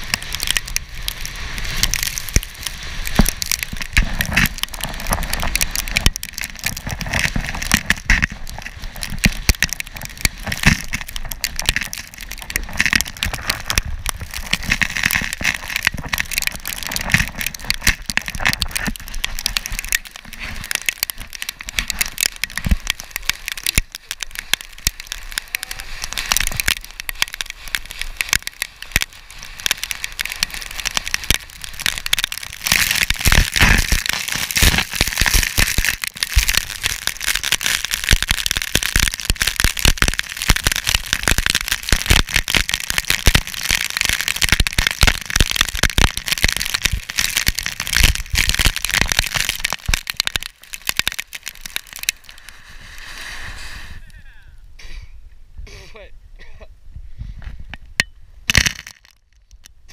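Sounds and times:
board sliding on gravel: 0.0s - 54.2s
grit pelting camera housing: 58.0s - 59.6s.

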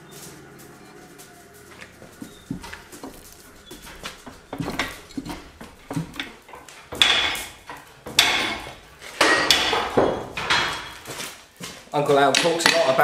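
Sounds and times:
metallic clanks of fly press: 2.6s - 11.0s.

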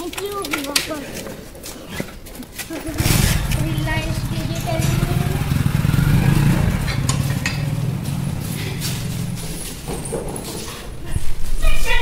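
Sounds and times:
vehicle engine rumbling: 2.8s - 11.6s.

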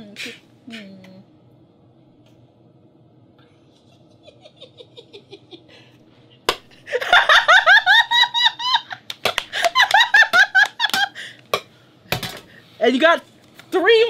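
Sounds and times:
man laughing: 3.8s - 5.8s, 6.7s - 11.3s
woman laughing high-pitched: 6.9s - 11.3s.

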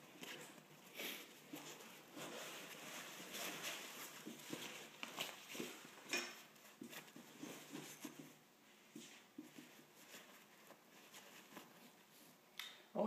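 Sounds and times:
nylon stuff sack rustling: 1.2s - 8.2s.

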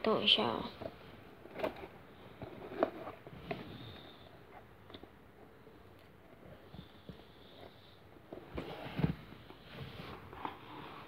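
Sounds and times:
cardboard rustling and scraping: 0.7s - 4.7s, 6.3s - 11.0s.

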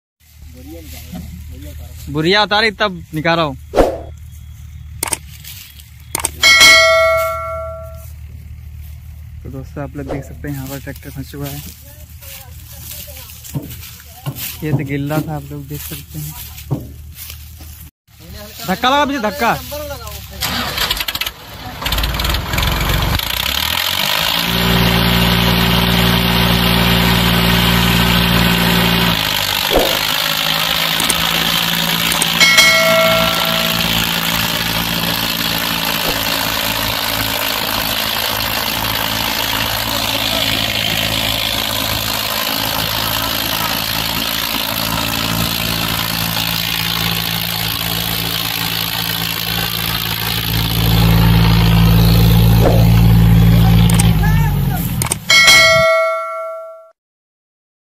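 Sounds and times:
tractor diesel engine under load: 0.4s - 56.8s
brief high tone: 6.2s - 8.1s, 32.4s - 34.6s, 55.3s - 56.9s.

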